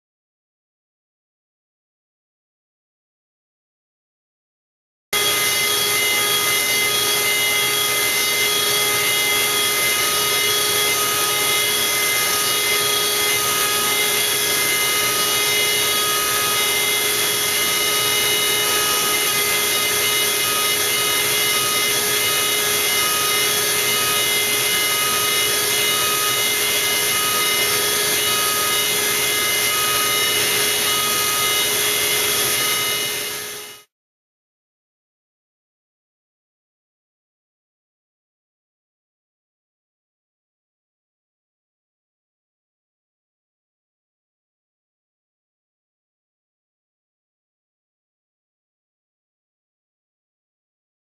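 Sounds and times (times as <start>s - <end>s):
router spindle whine: 5.2s - 33.9s.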